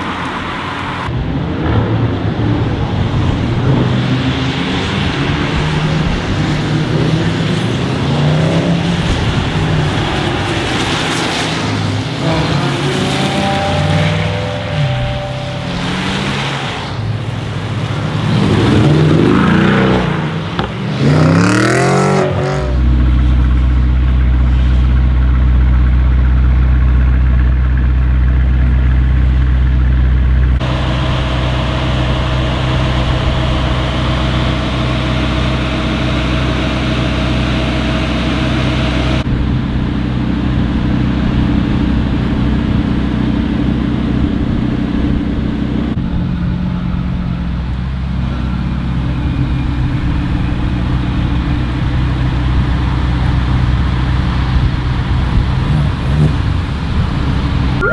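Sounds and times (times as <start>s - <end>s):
car engine idling: 22.7s - 57.9s.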